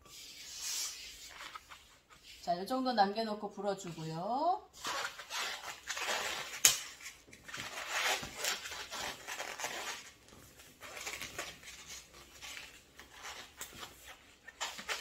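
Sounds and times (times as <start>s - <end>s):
balloons rubbing together: 0.0s - 2.5s, 4.7s - 15.0s
balloon snapping: 6.5s - 7.0s.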